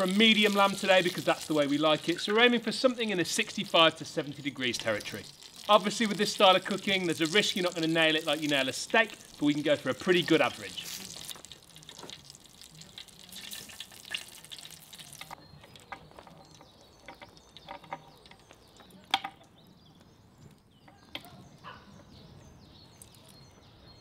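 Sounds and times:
wood fire crackling: 0.0 - 21.7
metal chain clicking on wood: 13.2 - 19.5.

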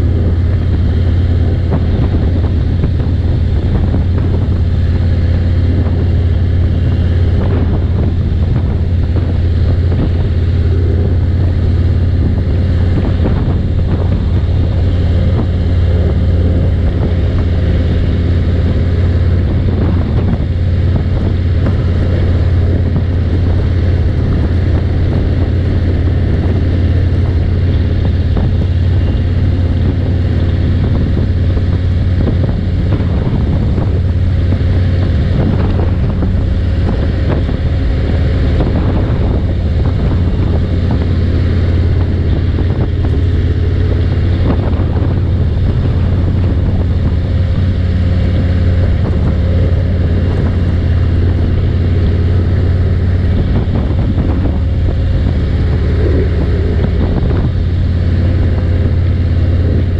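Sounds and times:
motorcycle engine cruising: 0.0 - 59.9
wind noise on microphone: 0.0 - 59.9.

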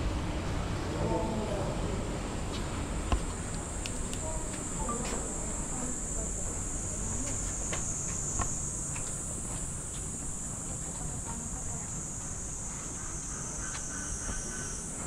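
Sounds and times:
insects buzzing: 1.6 - 15.0
faint clicks: 3.1 - 5.2.

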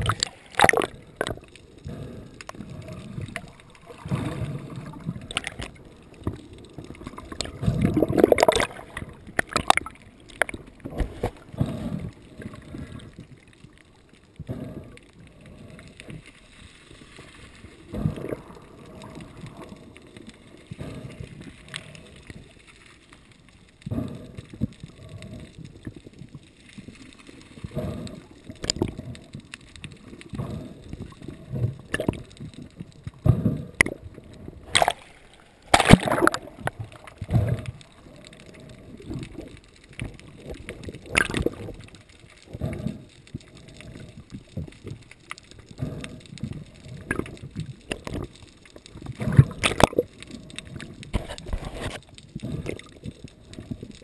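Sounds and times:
seawater sloshing and gurgling: 0.0 - 2.1, 7.0 - 13.2, 30.3 - 41.9, 49.0 - 50.2.

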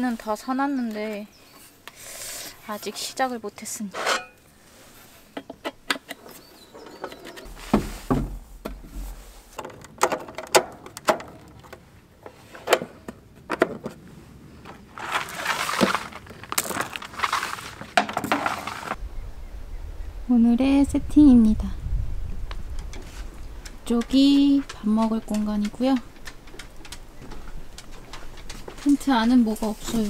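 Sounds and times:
rustling: 6.3 - 9.7, 14.0 - 19.6, 22.4 - 30.0
camping gear clicks and clatter: 22.8 - 30.0.

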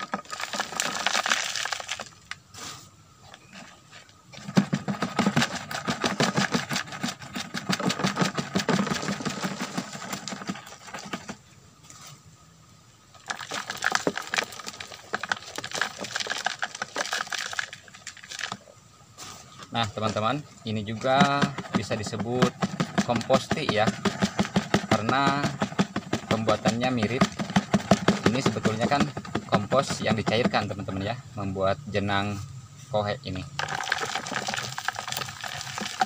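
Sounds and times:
granules rattling through metal funnel: 19.8 - 30.7, 33.6 - 36.0.

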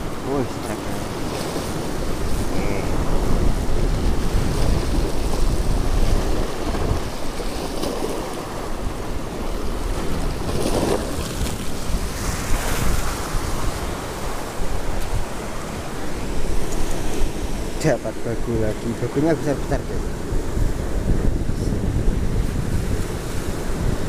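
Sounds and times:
surf breaking over rocks: 0.0 - 18.6
wind buffeting microphone: 0.0 - 24.0.

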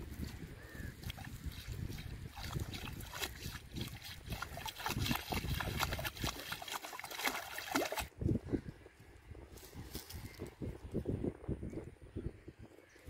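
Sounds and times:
water sloshing and splashing: 0.1 - 8.2.

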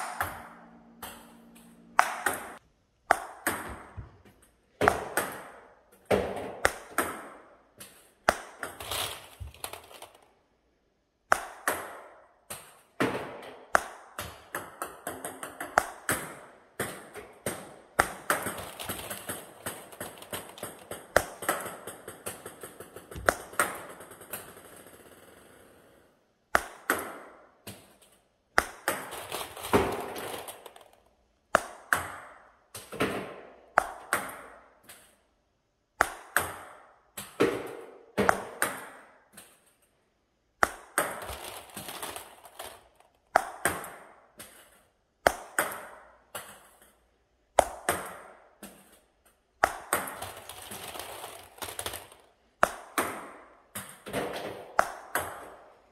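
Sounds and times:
ping-pong ball bouncing: 0.0 - 8.8, 11.3 - 25.9, 26.5 - 28.0, 31.5 - 35.1, 36.0 - 39.6, 43.3 - 46.9, 49.6 - 50.4, 52.6 - 55.8
paddle striking ping-pong ball: 23.1 - 23.9.

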